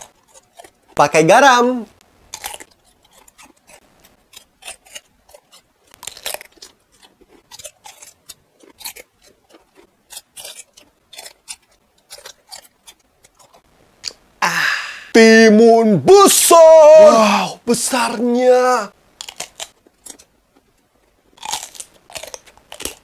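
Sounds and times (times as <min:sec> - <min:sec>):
cucumber crunching: 0:00.0 - 0:14.2, 0:19.1 - 0:23.0.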